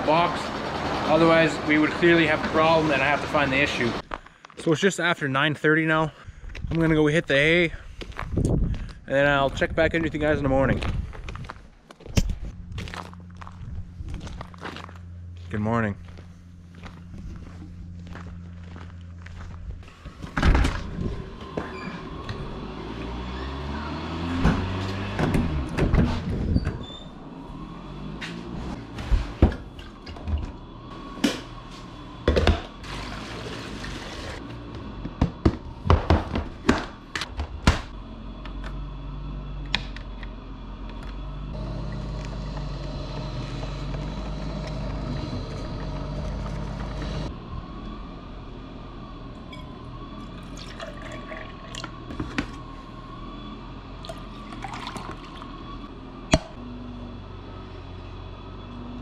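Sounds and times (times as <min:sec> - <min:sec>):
steady low hum: 0:07.5 - 0:21.4, 0:34.4 - 0:59.0
coffee pouring into tumbler: 0:50.4 - 0:52.0, 0:54.0 - 0:55.5
running liquid: 0:50.4 - 0:52.1.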